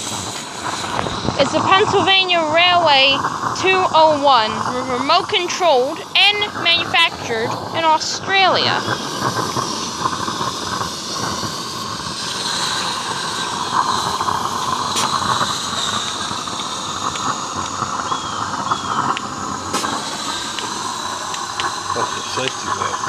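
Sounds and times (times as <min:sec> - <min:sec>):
steam hissing: 0:00.0 - 0:23.0
sharp clicks: 0:13.7 - 0:22.8.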